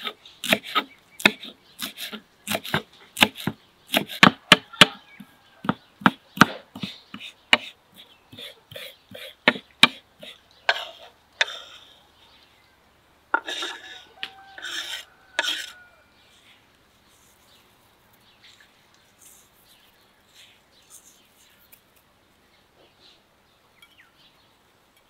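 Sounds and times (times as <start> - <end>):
knife scraping strokes: 0.0 - 4.3, 13.4 - 17.6, 18.5 - 22.0
knife chopping on wooden board: 0.4 - 5.0, 5.6 - 7.7
faint bird chirps: 14.0 - 24.6.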